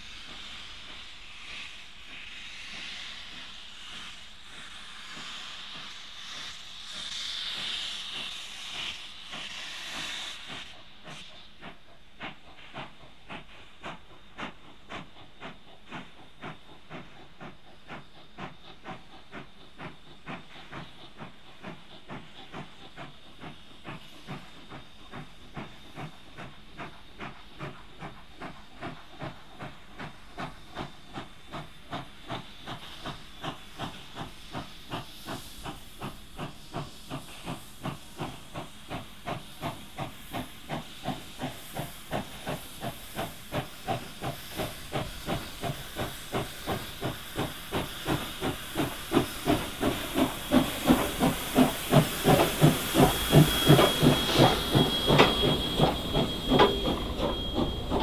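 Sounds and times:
steam hissing: 0:00.0 - 0:58.0
steam locomotive exhaust chuffs: 0:00.0 - 0:58.0.

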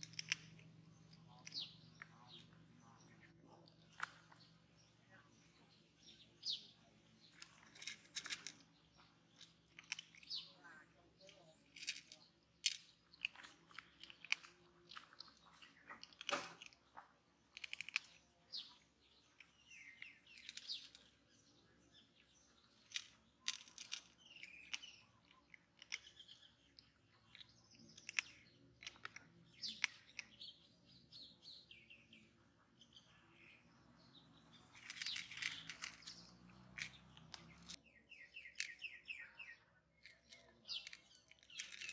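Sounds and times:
kitten crunching dry kibble: 0:00.0 - 0:02.0, 0:11.6 - 0:18.2
birds chirping: 0:00.0 - 0:41.9.

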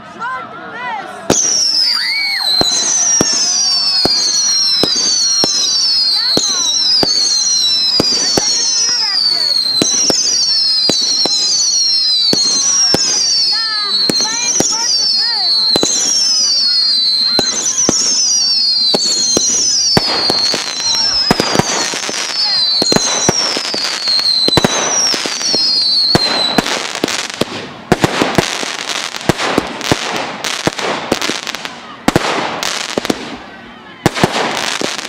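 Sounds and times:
firework reports: 0:00.0 - 0:35.0
fireworks crackling and popping: 0:01.2 - 0:35.0
firework whistles falling in pitch: 0:01.3 - 0:27.4.

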